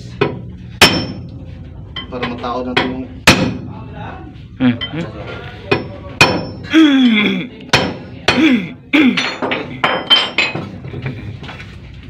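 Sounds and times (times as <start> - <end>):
hammer striking steel bar: 0.2 - 1.3, 5.7 - 6.6.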